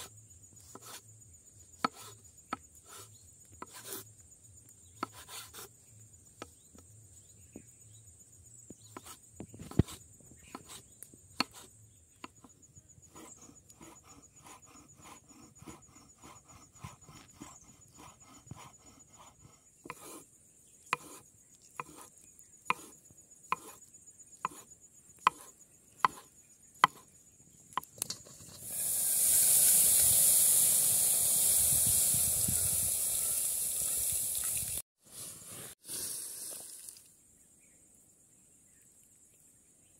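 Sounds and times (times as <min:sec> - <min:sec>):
knife chopping on wooden board: 0:01.8 - 0:03.0, 0:05.0 - 0:05.7, 0:11.4 - 0:12.5, 0:13.2 - 0:20.2, 0:20.9 - 0:21.2, 0:21.8 - 0:22.1, 0:22.7 - 0:23.8, 0:24.4 - 0:27.1
loud steady hiss: 0:28.5 - 0:37.1.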